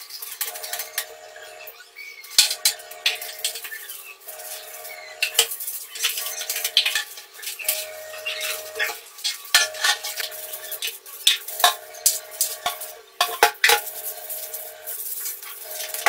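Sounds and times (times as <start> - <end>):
brush scrubbing tiles: 4.3 - 16.0.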